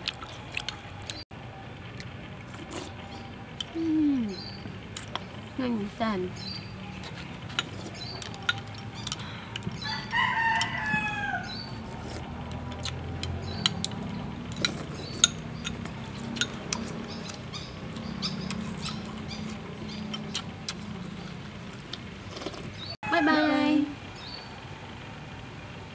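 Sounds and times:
rooster crowing: 9.8 - 12.0, 23.0 - 24.0.

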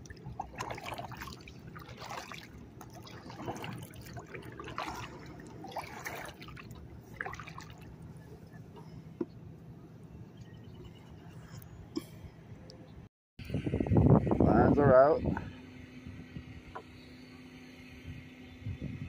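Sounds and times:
kayak paddle strokes in water: 0.0 - 9.3
water dripping off paddle: 0.1 - 7.9.

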